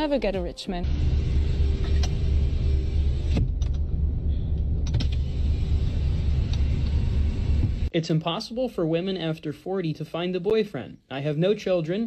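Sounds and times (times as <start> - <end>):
low rumble in car cabin: 0.9 - 7.9.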